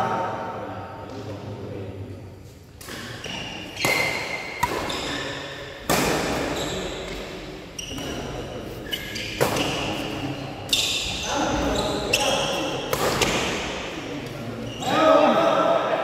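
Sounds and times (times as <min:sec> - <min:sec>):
racket striking shuttlecock: 0:03.8 - 0:05.2, 0:05.8 - 0:06.5.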